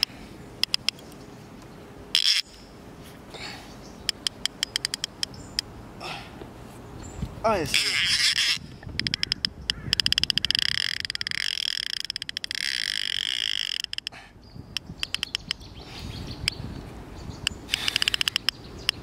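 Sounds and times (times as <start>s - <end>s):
fishing reel drag clicking: 8.2s - 14.1s.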